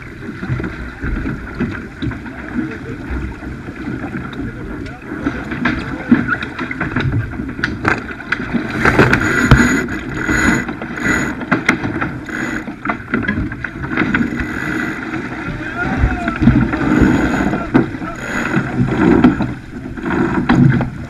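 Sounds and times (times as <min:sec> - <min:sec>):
water rushing along hull: 0:00.0 - 0:21.0
wind buffeting microphone: 0:02.9 - 0:21.0
clicks and knocks of rigging: 0:03.3 - 0:15.5, 0:16.2 - 0:21.0
short whirring bursts: 0:08.7 - 0:11.5, 0:12.2 - 0:12.9, 0:14.1 - 0:15.3, 0:16.8 - 0:19.4.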